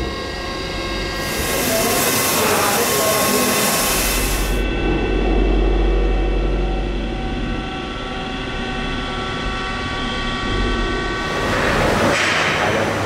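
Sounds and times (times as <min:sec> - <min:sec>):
high whining machine tones: 0:00.0 - 0:13.0
deep hum: 0:03.8 - 0:13.0.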